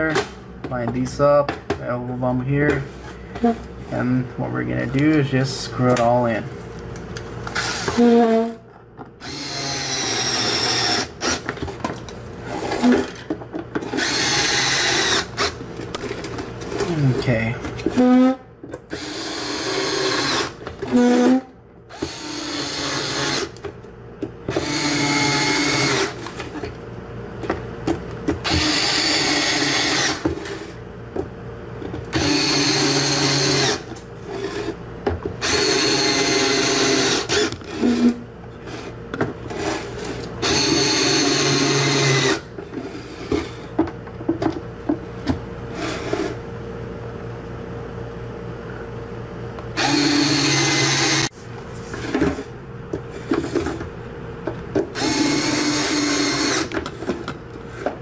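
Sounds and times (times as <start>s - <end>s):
cordless drill driving screws: 7.5s - 8.1s, 9.2s - 11.5s, 13.9s - 15.6s, 18.9s - 21.3s, 21.9s - 23.6s, 24.6s - 26.2s, 28.4s - 30.2s, 32.1s - 34.7s, 35.4s - 38.1s, 40.4s - 42.4s, 49.8s - 51.3s, 55.0s - 56.8s.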